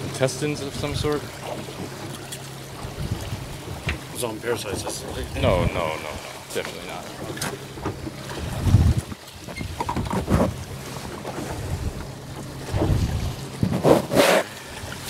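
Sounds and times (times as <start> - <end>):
boat motor humming: 0.0 - 15.0
wind gusting on microphone: 2.8 - 4.0, 4.7 - 6.3, 8.4 - 10.8, 11.5 - 14.2.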